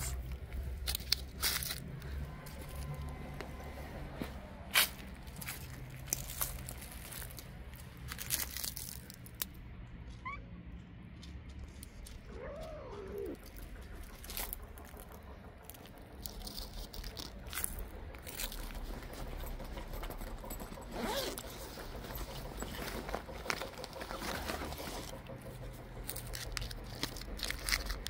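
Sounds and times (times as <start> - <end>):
rustling and clicking: 0.0 - 28.0
cat meowing: 12.3 - 13.4.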